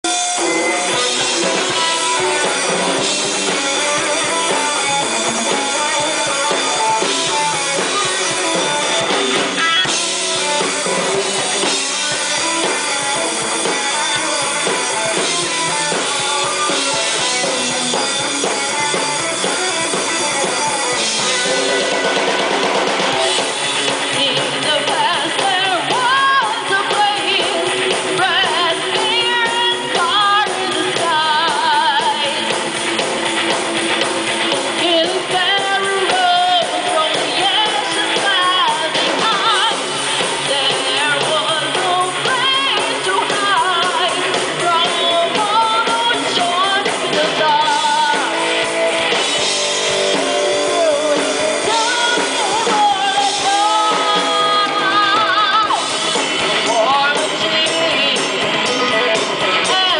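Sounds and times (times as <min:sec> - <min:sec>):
person singing: 0:00.0 - 0:22.2, 0:23.2 - 0:32.6, 0:34.6 - 0:59.9
bass guitar: 0:00.0 - 0:59.9
drum kit: 0:00.0 - 0:59.9
electric guitars: 0:00.0 - 0:59.9.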